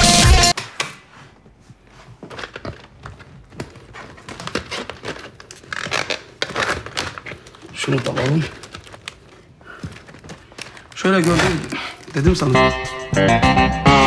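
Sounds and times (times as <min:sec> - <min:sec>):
plastic cassette cases clattering: 0:02.2 - 0:12.5.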